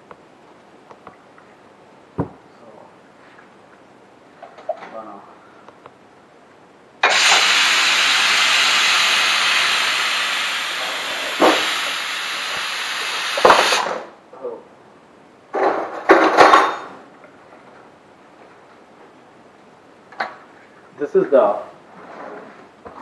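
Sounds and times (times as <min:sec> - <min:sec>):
knocks: 0:02.2 - 0:02.4
pressure cooker whistle hissing: 0:07.0 - 0:13.9.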